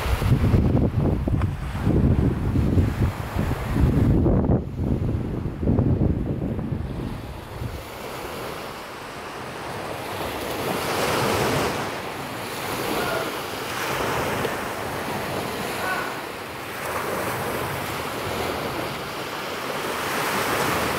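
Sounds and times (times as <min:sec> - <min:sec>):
waves washing on pebble beach: 0:06.8 - 0:20.9.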